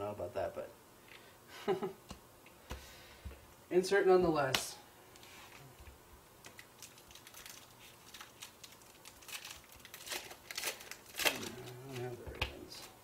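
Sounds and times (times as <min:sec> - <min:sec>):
foil pack crinkling: 0:06.4 - 0:13.0.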